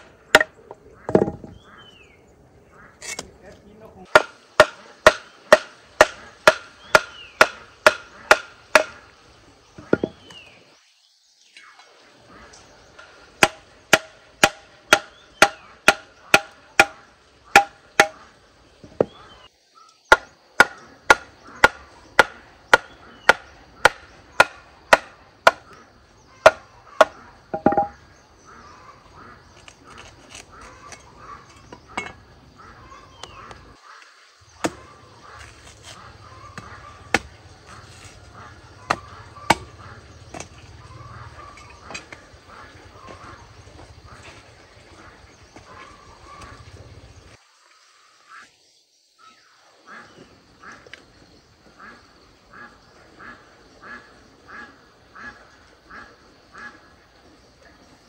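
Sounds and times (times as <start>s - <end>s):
blade chopping on wood: 4.1s - 9.0s, 13.4s - 18.2s.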